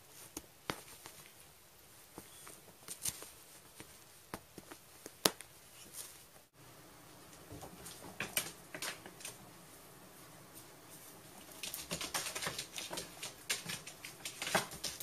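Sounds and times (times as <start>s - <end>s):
kitten rustling in blanket: 0.0s - 6.6s, 8.8s - 15.0s
cat paws on wooden floor: 10.4s - 15.0s.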